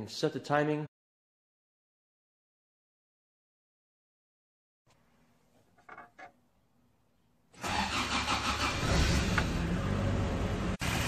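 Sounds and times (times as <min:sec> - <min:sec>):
car engine starting and running: 0:07.6 - 0:11.0.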